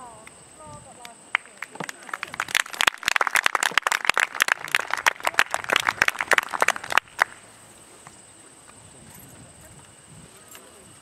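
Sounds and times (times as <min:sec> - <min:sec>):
crowd applauding: 0:01.3 - 0:07.4.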